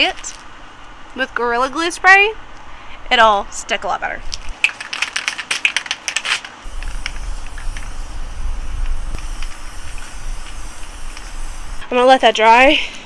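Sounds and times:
aerosol spray hissing: 6.6 - 11.8
steady low rumble: 6.6 - 13.0.

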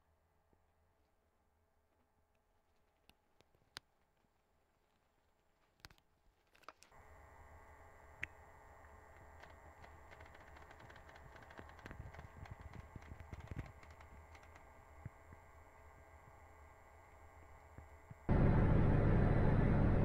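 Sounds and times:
faint steady hum: 6.8 - 20.0.

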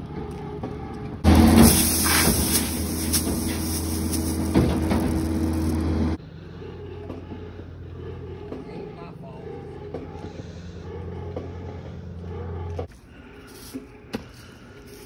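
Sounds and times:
faint engine drone: 0.0 - 14.1
engine running with loud hiss: 1.2 - 6.2.

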